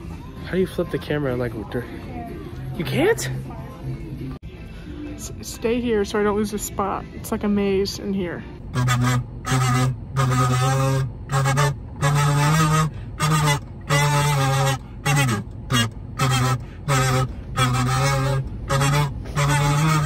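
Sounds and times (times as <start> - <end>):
goose-like honks: 8.7 - 20.0.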